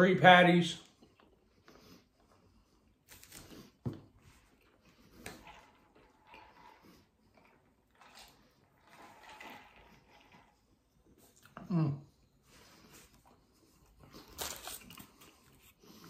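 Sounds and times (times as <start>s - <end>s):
person chewing: 0.9s - 11.7s
sipping through a straw: 5.0s - 11.6s.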